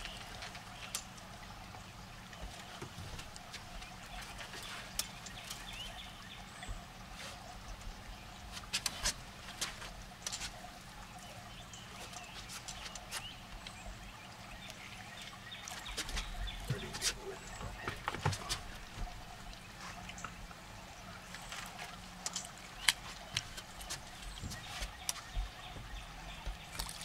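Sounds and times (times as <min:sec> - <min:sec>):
light clicks and knocks: 0:15.7 - 0:19.2.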